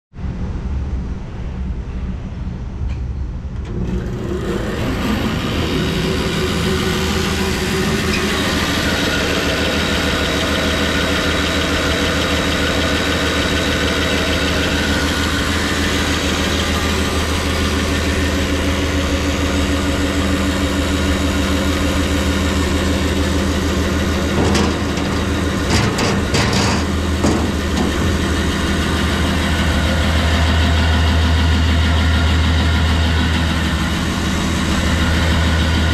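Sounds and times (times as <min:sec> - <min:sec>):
band saw running: 0:03.7 - 0:35.9
short knocks: 0:24.3 - 0:28.4.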